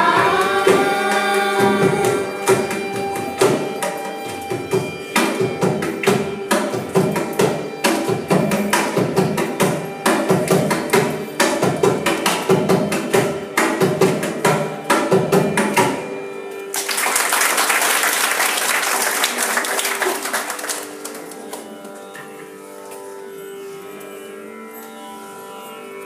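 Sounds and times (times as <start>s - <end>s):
mridangam drum strokes: 0.0s - 16.2s
audience applause: 16.7s - 21.7s.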